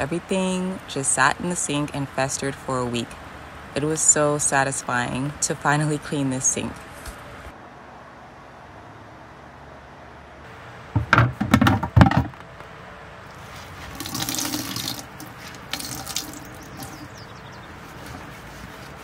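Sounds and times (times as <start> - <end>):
water splashing in a steel sink: 13.6 - 17.3.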